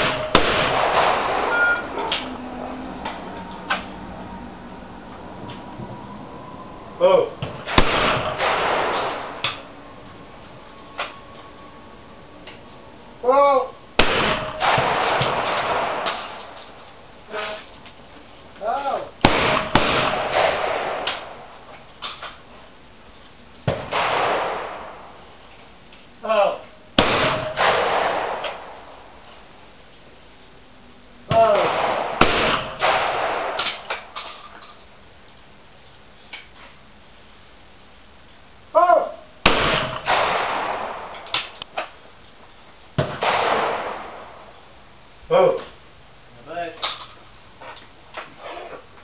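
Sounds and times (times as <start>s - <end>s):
shotgun shots with echo: 0.0s - 1.6s, 7.6s - 9.7s, 14.0s - 16.6s, 19.2s - 21.5s, 23.7s - 25.2s, 27.0s - 28.9s, 31.4s - 34.1s, 39.4s - 41.6s, 43.0s - 44.5s
person shouting a call: 13.2s - 13.8s, 26.2s - 26.6s, 38.7s - 39.3s.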